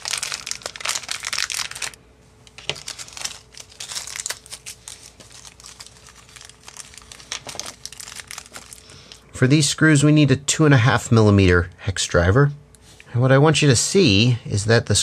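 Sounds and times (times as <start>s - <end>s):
plastic bag crinkling: 0.0s - 9.2s.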